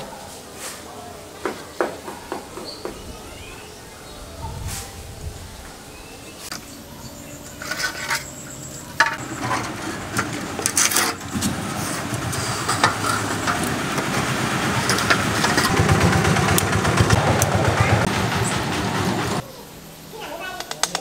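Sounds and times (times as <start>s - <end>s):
trowel scraping wet cement: 9.2s - 14.1s.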